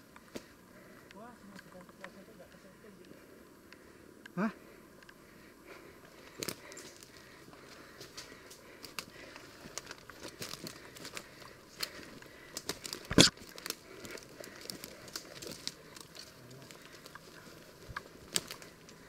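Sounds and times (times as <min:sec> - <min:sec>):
footsteps crunching on dry twigs: 0:06.1 - 0:19.0.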